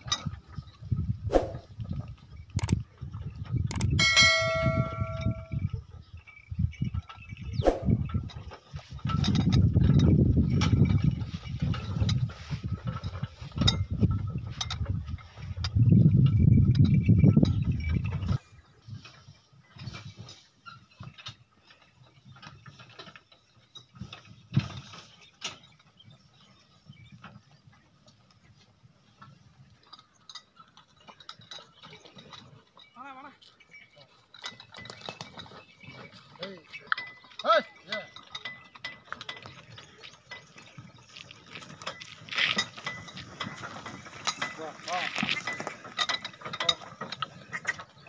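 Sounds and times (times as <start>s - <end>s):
bullock cart clicking and knocking: 0.0s - 48.0s
rustling scrape: 1.2s - 1.8s, 39.6s - 48.0s
faint ringing tone: 4.0s - 5.7s.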